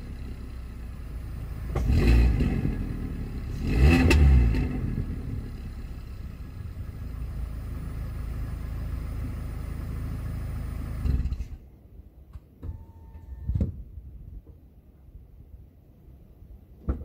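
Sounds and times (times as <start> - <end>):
car engine idling: 0.0 - 11.8
brief beep: 12.6 - 13.6.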